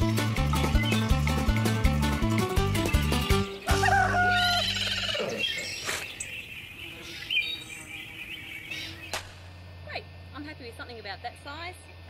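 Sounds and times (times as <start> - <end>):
background music: 0.0 - 5.2
birds chirping: 0.3 - 9.2.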